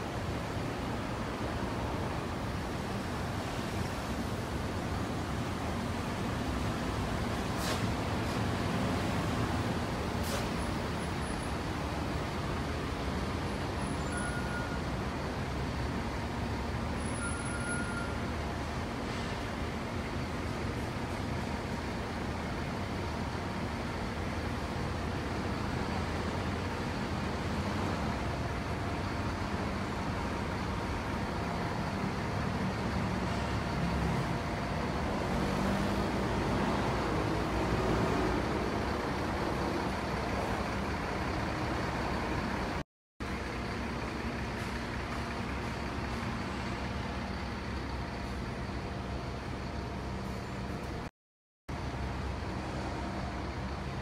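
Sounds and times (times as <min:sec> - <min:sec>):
busy road traffic: 0:00.0 - 0:51.1, 0:51.7 - 0:54.0.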